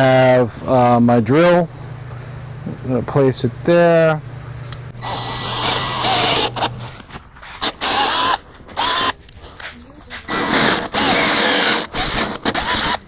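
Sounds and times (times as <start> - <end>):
cordless drill boring into wood: 5.0 - 6.7, 7.6 - 9.2, 10.3 - 13.0.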